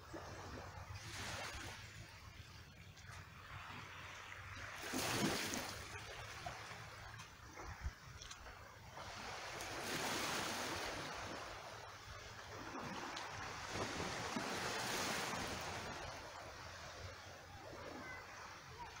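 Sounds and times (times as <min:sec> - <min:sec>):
small waves washing over rocky shore: 0:00.0 - 0:19.0.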